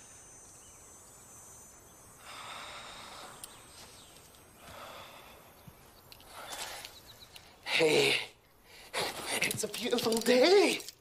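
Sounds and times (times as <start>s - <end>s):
faint background hiss: 0.0s - 11.0s
soft sighing breaths: 2.1s - 9.1s.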